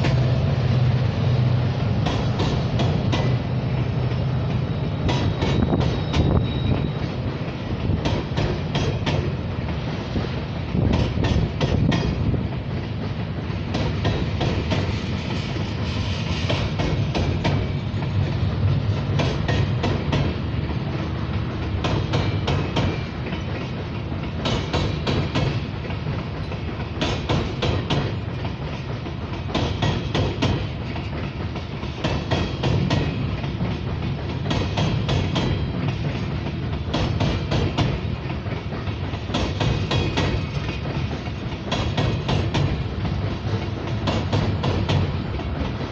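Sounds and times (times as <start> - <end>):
train rumbling on bridge: 0.0 - 45.9.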